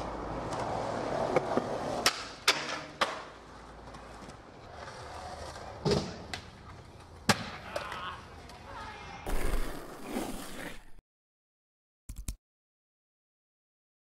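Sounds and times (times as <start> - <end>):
skateboard wheels rolling on concrete: 0.0 - 11.0
skateboard clacking on ground: 0.4 - 8.7.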